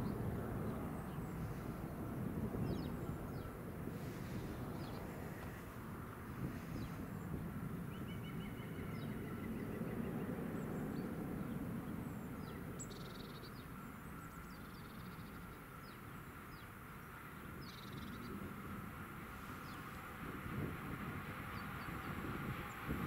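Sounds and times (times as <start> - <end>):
distant low rumble: 0.0 - 15.2
songbirds chirping: 0.0 - 20.2.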